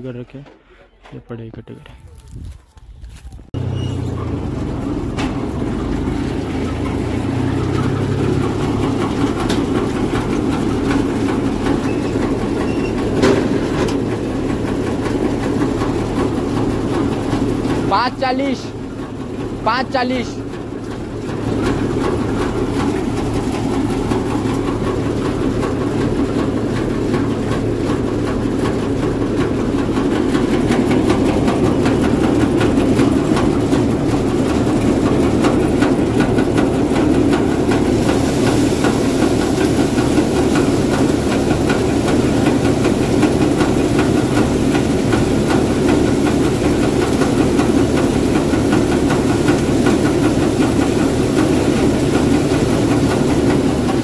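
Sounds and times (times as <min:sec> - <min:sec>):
thresher churning rumble: 0:02.2 - 0:54.0
tractor engine hum: 0:03.5 - 0:54.0
hissing rush of air and chaff: 0:37.3 - 0:48.6.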